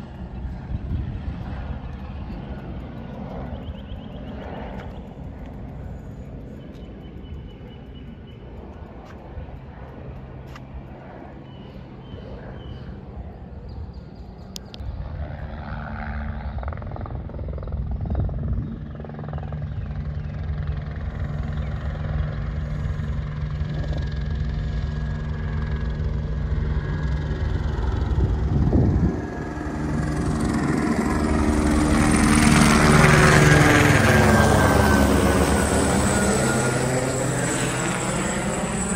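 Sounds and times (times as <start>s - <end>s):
helicopter rotor and engine: 0.0s - 38.9s.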